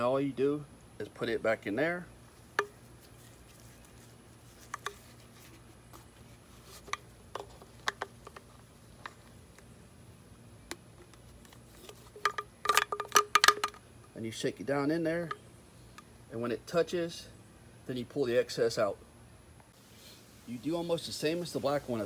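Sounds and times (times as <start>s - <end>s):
filter rattling in plastic tank: 11.9s - 13.8s.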